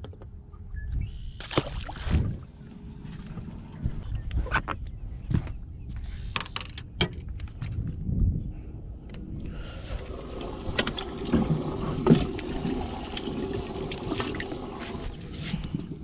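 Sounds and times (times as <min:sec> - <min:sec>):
water sloshing and splashing: 0:01.4 - 0:02.4, 0:09.8 - 0:16.0.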